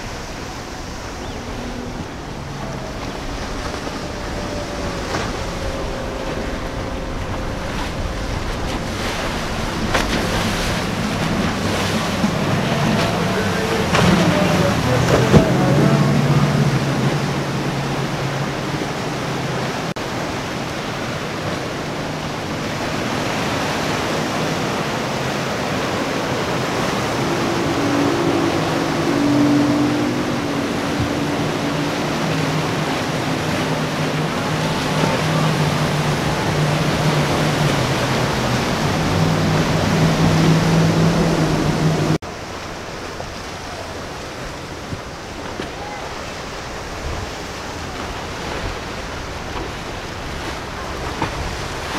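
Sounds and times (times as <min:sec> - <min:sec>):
outboard motors humming: 0:00.0 - 0:51.9
waves breaking: 0:00.0 - 0:51.9.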